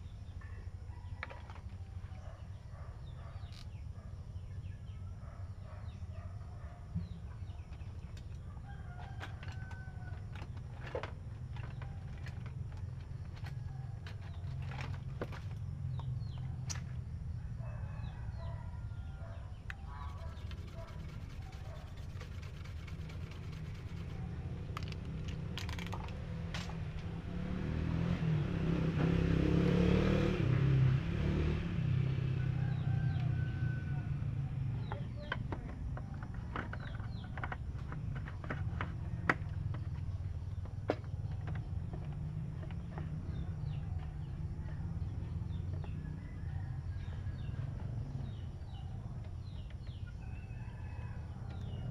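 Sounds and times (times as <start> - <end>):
clicks and rattles of handled parts: 7.7 - 17.0, 19.7 - 27.1, 34.8 - 43.3
rooster crowing: 17.5 - 19.4, 32.3 - 34.6, 46.0 - 47.7, 50.2 - 51.9.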